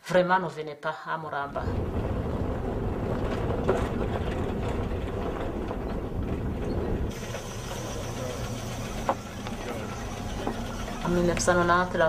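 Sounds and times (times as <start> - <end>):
vehicle engine rumble with knocks: 1.7 - 12.0
vehicle hum: 1.7 - 12.0.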